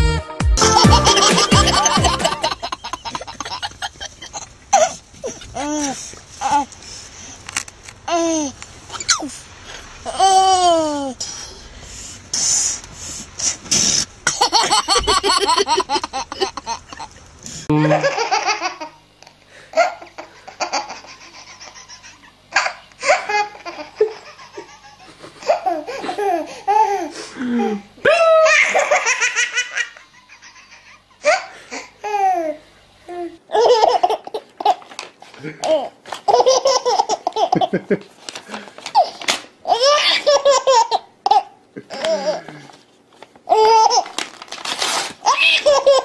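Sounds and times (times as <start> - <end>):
baby laughing: 0.6 - 6.7, 14.2 - 17.3, 17.9 - 19.0, 19.8 - 27.8, 28.4 - 32.6, 33.5 - 34.9, 35.6 - 37.8, 38.9 - 42.6, 43.5 - 44.2, 45.2 - 46.0
paper tearing: 43.9 - 45.7.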